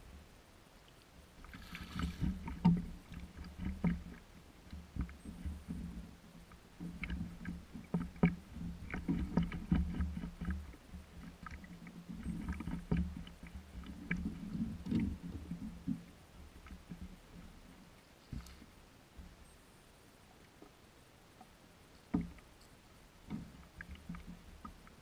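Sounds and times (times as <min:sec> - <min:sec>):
water slapping against hull: 0:01.4 - 0:06.1, 0:06.8 - 0:17.2.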